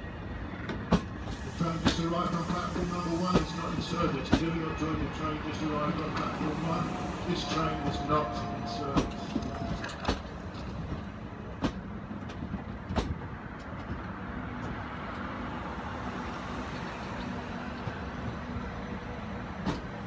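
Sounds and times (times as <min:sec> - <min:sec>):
train wheels rumbling: 0:00.0 - 0:20.0
wheels clicking over rail joints: 0:07.4 - 0:15.3.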